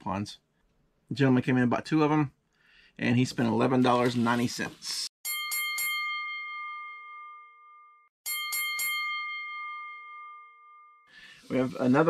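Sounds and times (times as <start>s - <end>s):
bell-like chime: 5.2s - 11.9s.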